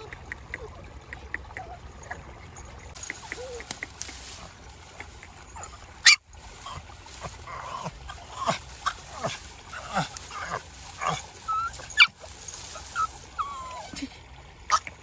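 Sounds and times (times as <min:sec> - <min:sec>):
puppies whimpering: 0:01.5 - 0:03.8, 0:05.4 - 0:14.1
grass and leaves rustling: 0:02.9 - 0:14.9
puppy high cry: 0:07.7 - 0:14.0.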